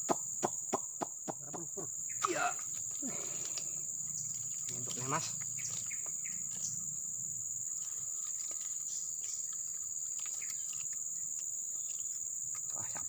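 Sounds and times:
insects buzzing drone: 0.0s - 13.0s
faint ticks: 2.6s - 6.8s.

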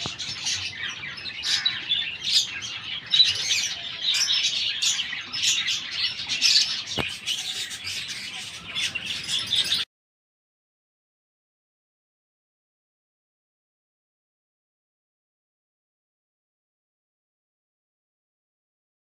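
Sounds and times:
lovebirds chirping and squeaking: 0.0s - 9.9s.

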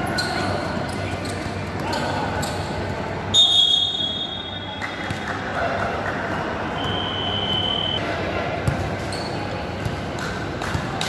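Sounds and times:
basketball game noise: 0.0s - 11.0s
referee whistle blast: 3.3s - 4.7s, 6.8s - 8.0s.

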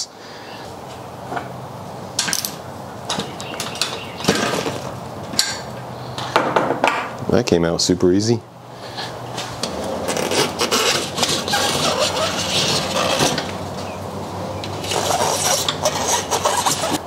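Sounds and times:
tire rubber scraping against rim: 3.2s - 5.2s, 9.0s - 14.0s, 14.6s - 17.0s.

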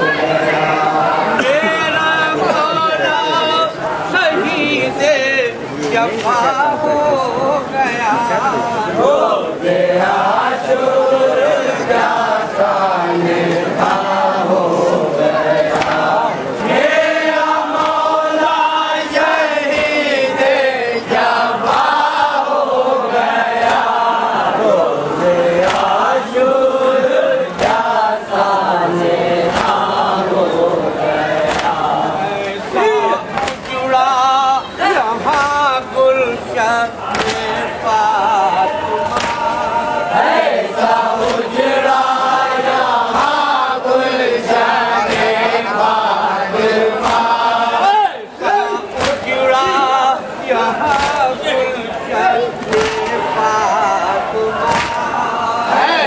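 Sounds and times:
men chanting a lament: 0.0s - 56.0s.

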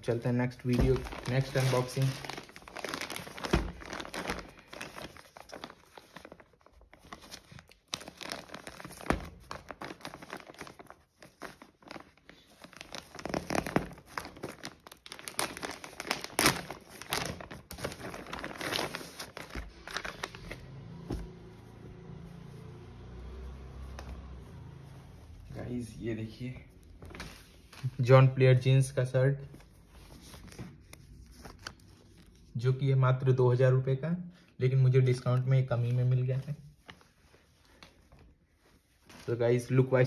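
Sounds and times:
plastic bag crinkling: 0.5s - 20.7s.

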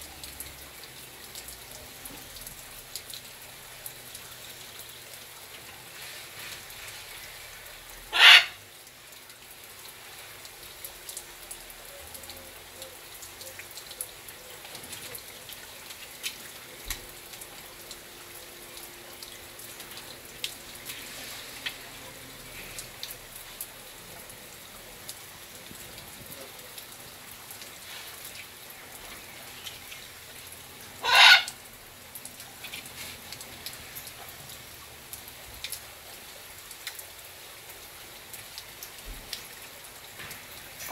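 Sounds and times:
macaw squawk: 8.1s - 8.6s, 31.0s - 31.6s
hose water spattering: 19.2s - 24.1s.

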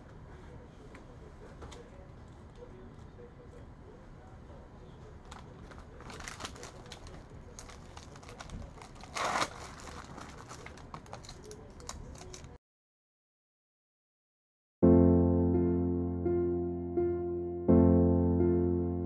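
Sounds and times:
loud plastic crackle: 5.2s - 12.6s
plastic packaging crinkling: 5.2s - 12.6s.

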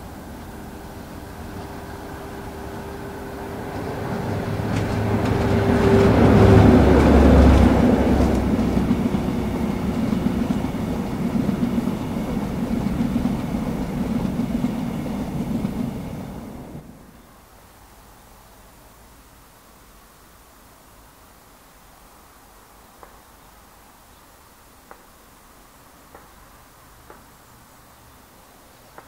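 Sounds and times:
diesel locomotive engines passing: 0.0s - 18.4s
wheel clatter over rail joints: 0.2s - 16.0s.

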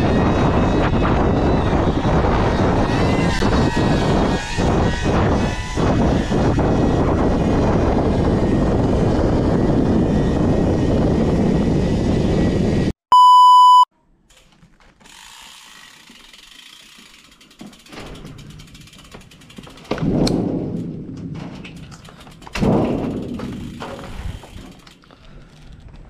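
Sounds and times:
loud rushing and rattling noise: 0.0s - 12.9s, 17.9s - 24.8s
short electronic beep: 13.1s - 13.9s.

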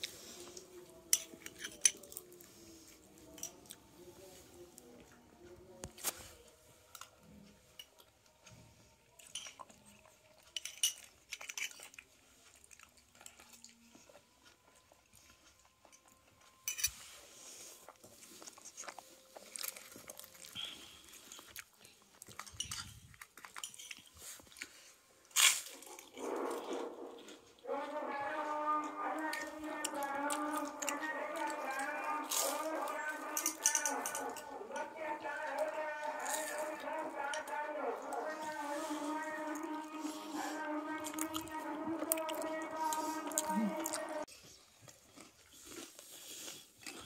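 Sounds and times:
chewing and crunching: 4.8s - 47.0s
spoon clinking against glass bowl: 33.4s - 34.5s.

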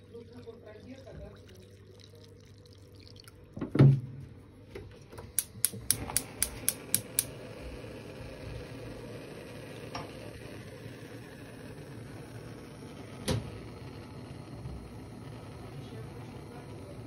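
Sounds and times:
gas flame hissing: 5.1s - 17.0s
stove igniter clicking: 5.2s - 7.4s.

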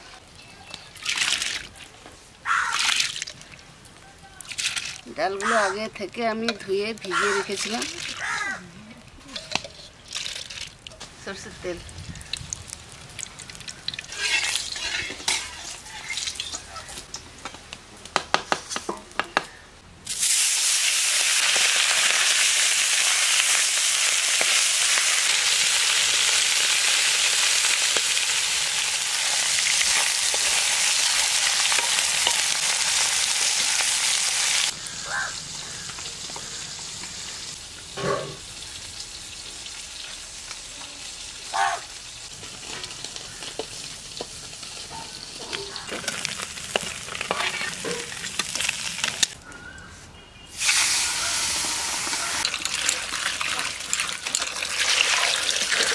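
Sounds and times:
fish sizzling in hot oil: 9.4s - 16.6s, 20.1s - 49.4s, 50.5s - 55.9s.

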